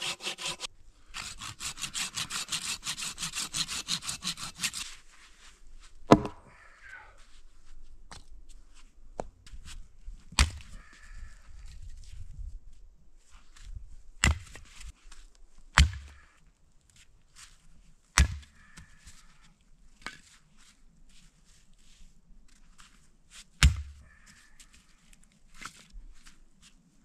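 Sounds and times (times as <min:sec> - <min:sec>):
axe chopping wood: 0:06.1 - 0:06.4, 0:10.4 - 0:10.7, 0:14.2 - 0:14.6, 0:15.8 - 0:16.2, 0:18.2 - 0:18.5, 0:23.6 - 0:24.0
wood knocking and crunching: 0:06.1 - 0:06.4.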